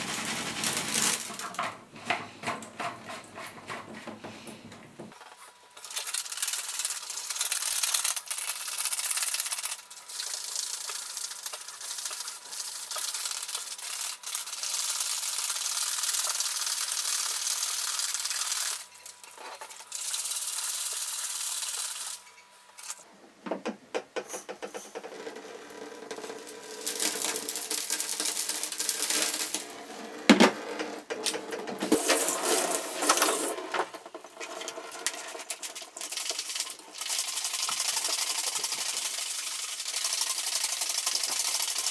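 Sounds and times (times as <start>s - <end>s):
rice rattling in plastic tank: 0.0s - 4.3s, 5.8s - 18.9s, 25.0s - 29.7s, 31.2s - 41.9s.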